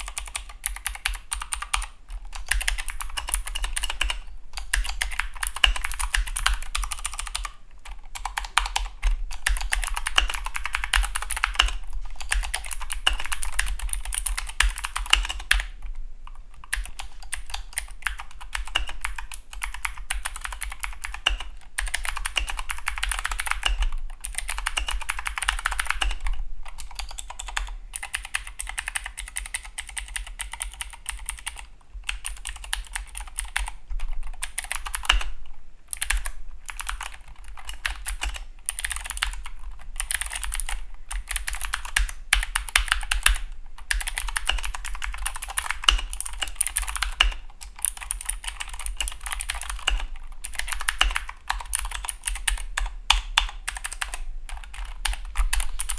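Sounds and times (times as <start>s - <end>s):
mechanical keyboard typing: 0.0s - 55.9s.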